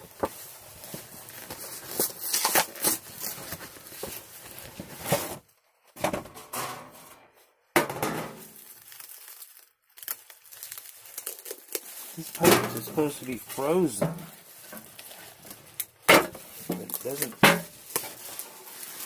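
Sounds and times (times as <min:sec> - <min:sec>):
plastic wrapping crinkling: 0:00.1 - 0:05.2, 0:08.4 - 0:19.0
cardboard box tearing: 0:01.6 - 0:04.0, 0:16.6 - 0:19.0.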